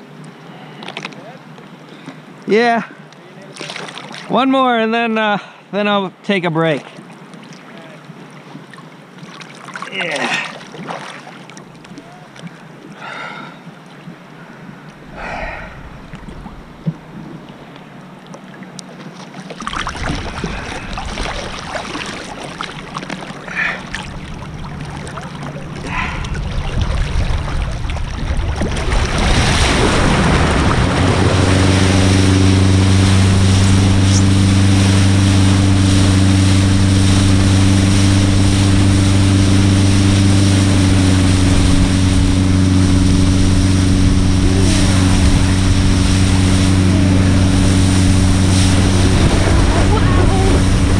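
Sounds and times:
boat low hum: 0.0s - 50.9s
lake water lapping and splashing: 0.0s - 50.9s
wind on microphone: 25.8s - 50.9s.

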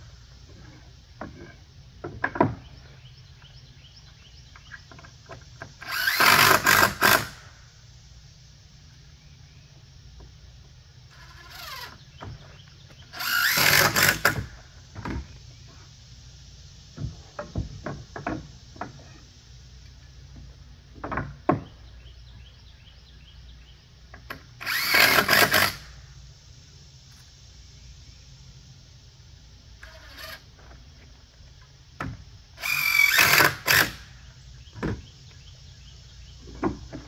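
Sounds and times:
cordless drill driving screws: 5.8s - 7.4s, 11.1s - 12.0s, 13.1s - 14.5s, 24.6s - 25.9s, 29.8s - 30.4s, 32.6s - 34.1s
wood knocking and tapping: 20.3s - 21.8s, 36.4s - 37.0s.

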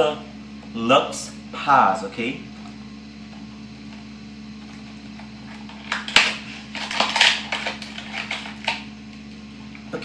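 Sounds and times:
packaging rustling and scraping: 5.4s - 8.8s.

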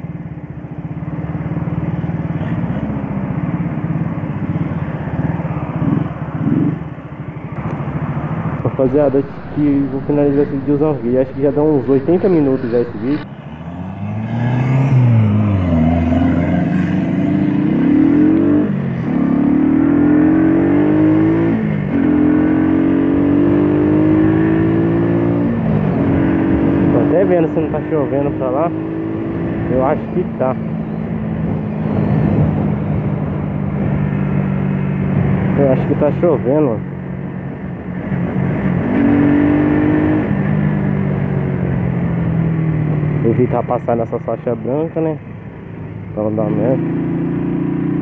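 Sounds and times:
wind noise on microphone: 7.6s - 13.3s, 31.1s - 35.5s.

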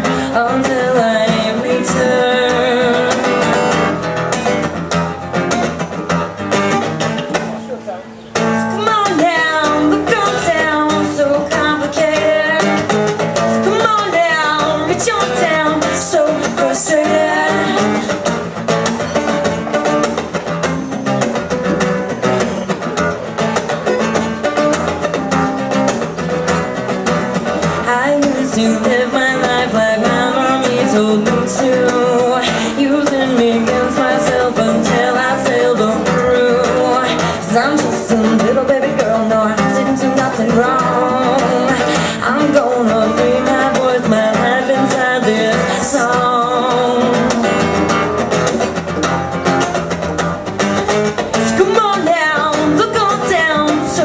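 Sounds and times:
backing singing: 0.0s - 3.9s, 27.8s - 47.9s
strummed acoustic guitar: 0.0s - 54.0s.

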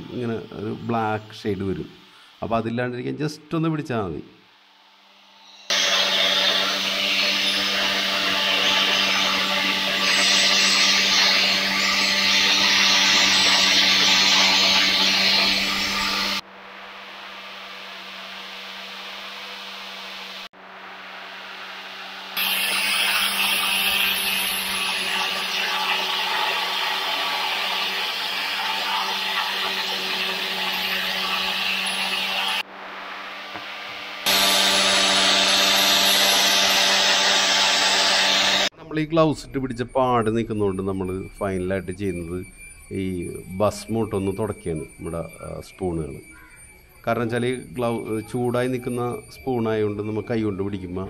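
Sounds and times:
angle grinder motor whine: 4.8s - 51.0s
buffing wheel hissing on metal: 5.6s - 16.4s, 22.2s - 32.6s, 34.2s - 38.7s
cloth wheel hissing on metal: 22.4s - 32.6s.

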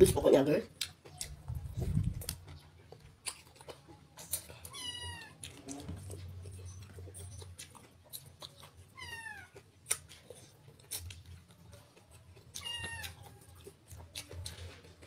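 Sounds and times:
eating clicks and smacks: 0.7s - 15.0s
cat meowing: 4.7s - 5.4s, 9.0s - 9.6s, 12.6s - 13.3s.

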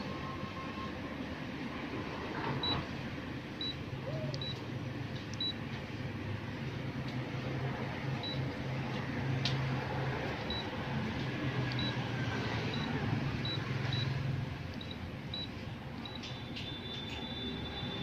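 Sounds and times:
copier touchscreen beeps: 2.6s - 2.9s, 3.6s - 4.6s, 5.4s - 5.6s, 8.2s - 8.5s, 10.4s - 10.7s, 11.8s - 18.0s.

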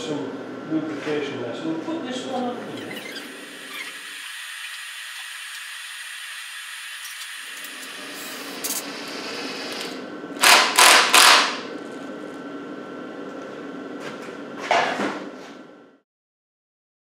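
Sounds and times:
cordless drill running bolts: 3.2s - 11.5s.

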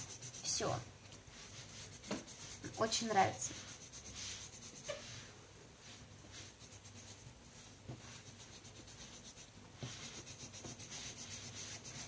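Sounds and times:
pencil scratching on paper: 0.0s - 5.3s, 6.3s - 12.0s.

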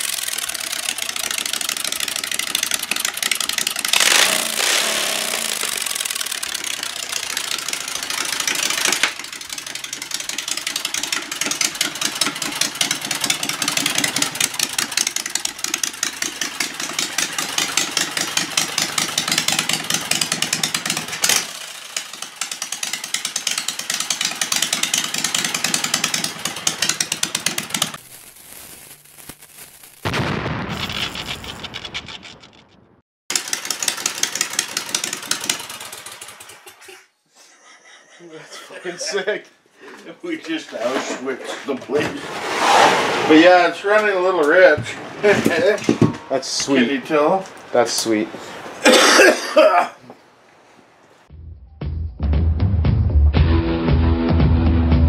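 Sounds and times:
generator engine running: 0.0s - 28.0s, 33.3s - 36.8s.

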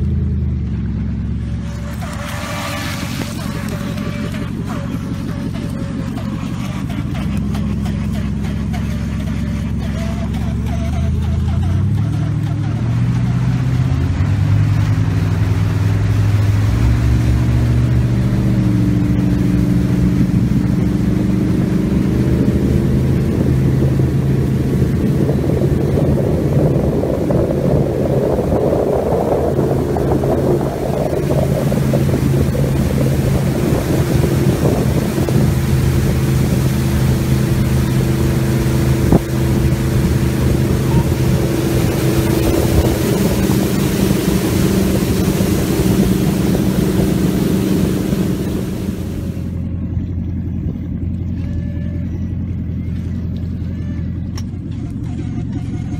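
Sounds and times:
water rushing past hull: 0.0s - 49.7s
boat engine running: 0.0s - 55.9s
wind buffeting microphone: 14.6s - 49.5s.

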